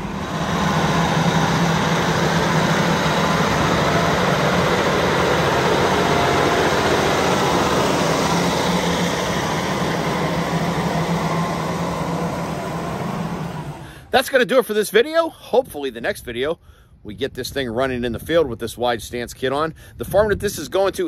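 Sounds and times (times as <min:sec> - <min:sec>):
diesel engine running: 0:00.0 - 0:14.2.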